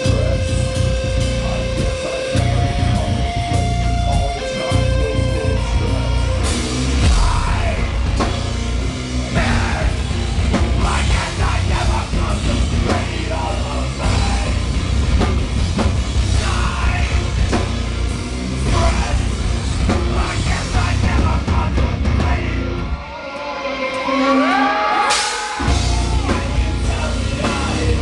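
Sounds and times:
person singing: 0:00.0 - 0:08.3, 0:09.3 - 0:14.7, 0:20.0 - 0:28.0
heavy rock band playing: 0:00.0 - 0:28.0.

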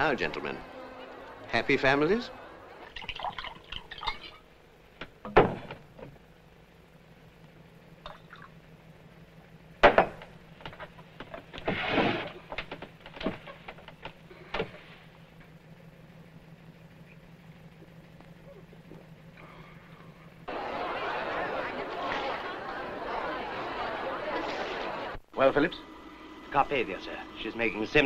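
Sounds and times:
drink pouring: 0:02.8 - 0:04.4, 0:08.1 - 0:08.6
bottle and glass clinking: 0:03.0 - 0:04.4, 0:08.0 - 0:08.5.

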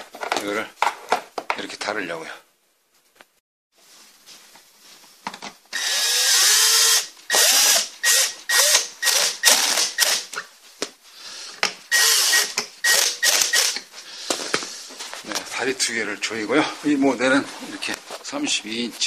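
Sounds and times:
cordless drill driving screws: 0:05.7 - 0:10.4, 0:11.9 - 0:13.8.

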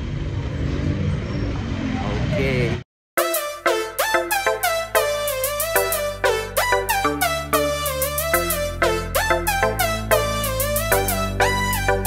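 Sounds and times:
plucked melody over bass: 0:03.2 - 0:12.0.

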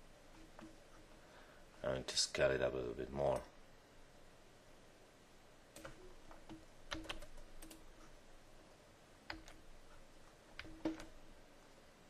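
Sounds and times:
keyboard and mouse clicks: 0:05.8 - 0:07.9, 0:09.3 - 0:09.6, 0:10.6 - 0:11.2.

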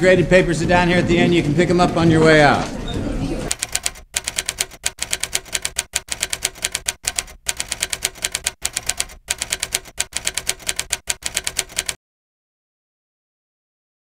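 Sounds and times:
typewriter keys clacking: 0:03.5 - 0:12.0.

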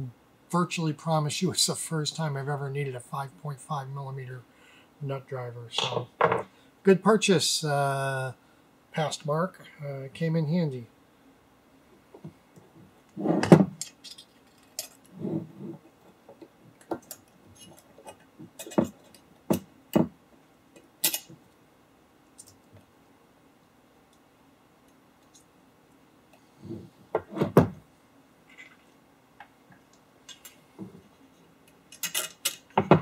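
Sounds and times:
small metal parts clicking: 0:13.8 - 0:15.1, 0:20.8 - 0:21.3, 0:31.9 - 0:32.8.

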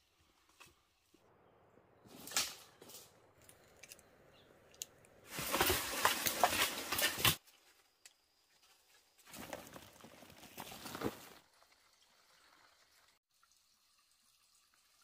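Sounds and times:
leaves and undergrowth rustling: 0:05.2 - 0:11.4.

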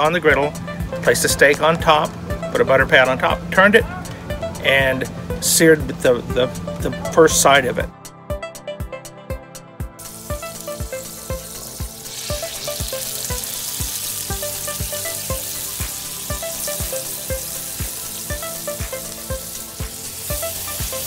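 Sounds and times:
background music with steady beat: 0:00.0 - 0:21.0
steaks sizzling on griddle: 0:10.0 - 0:21.0.

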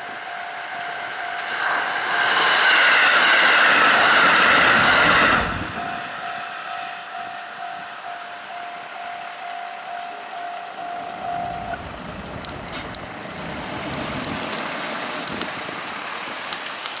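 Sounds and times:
level-crossing warning bell: 0:00.0 - 0:02.4, 0:04.8 - 0:13.9
road vehicles moving: 0:00.8 - 0:17.0.

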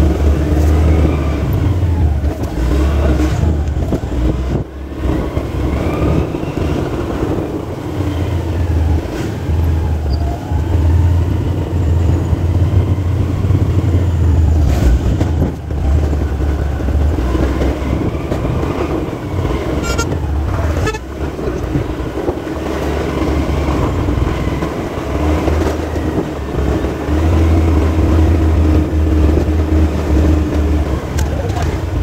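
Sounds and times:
motorcycle engine running: 0:00.0 - 0:32.0
wind rumble on microphone: 0:00.0 - 0:32.0
horn toot: 0:19.7 - 0:21.2.

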